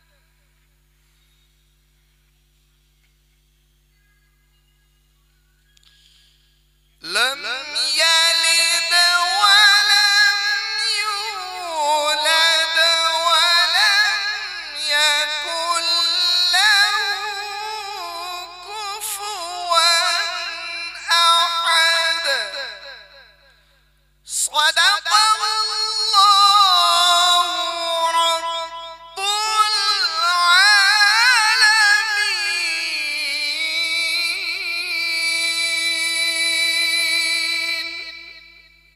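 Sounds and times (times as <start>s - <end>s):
man chanting melodically: 7.0s - 23.6s, 24.3s - 38.7s.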